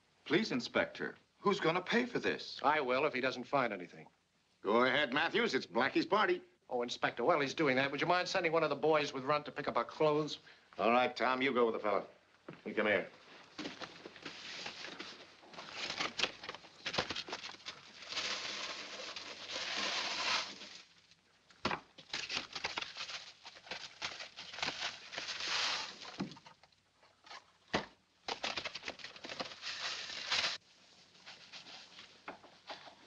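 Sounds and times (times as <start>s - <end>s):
paper packets tearing: 14.4s - 21.0s, 22.0s - 26.3s, 28.3s - 30.6s
dry tea leaves pattering: 17.2s - 21.0s, 22.3s - 26.2s, 29.4s - 30.6s.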